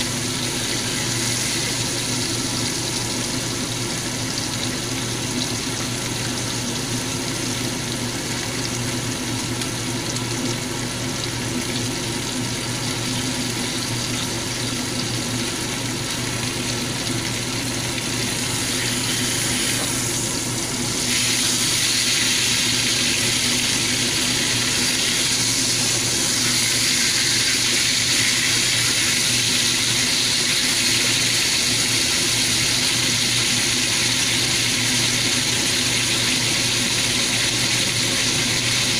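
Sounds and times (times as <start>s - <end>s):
steaks sizzling in a pan: 0.0s - 3.4s, 18.0s - 20.4s, 21.0s - 38.9s.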